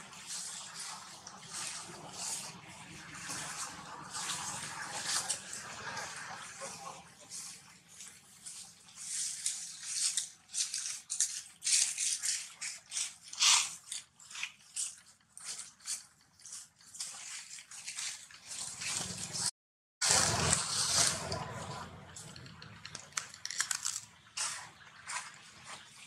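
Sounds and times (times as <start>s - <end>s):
dry leaves crackling and rustling: 7.3s - 21.8s.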